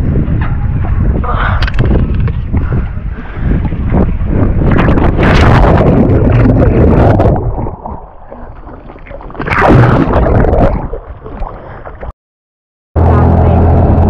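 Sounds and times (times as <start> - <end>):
sea water rushing and gurgling: 3.6 - 12.1.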